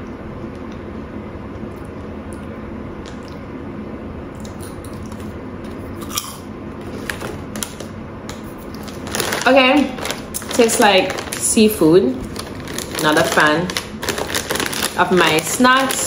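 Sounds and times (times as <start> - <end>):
steady background hum: 0.0 - 16.0
person chewing crunchy snack: 4.4 - 7.1.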